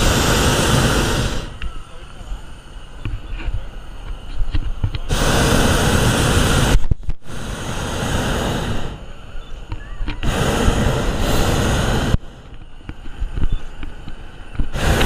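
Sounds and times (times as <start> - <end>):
propane burner blasts: 0.0 - 15.0.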